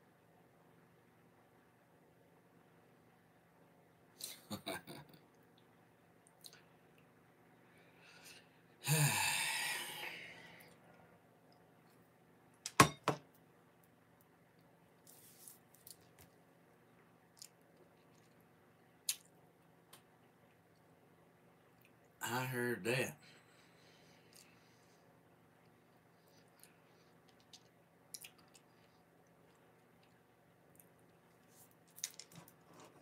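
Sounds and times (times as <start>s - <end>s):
man breathy vocal sound: 8.2s - 10.6s.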